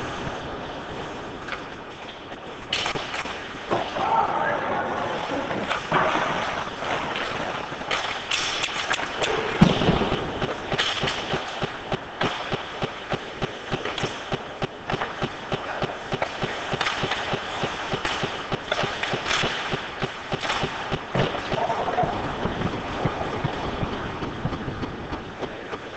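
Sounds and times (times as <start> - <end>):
skates on ice: 0.0 - 25.9
hockey sticks and puck clacking: 1.4 - 25.9
loud thud: 9.4 - 11.4.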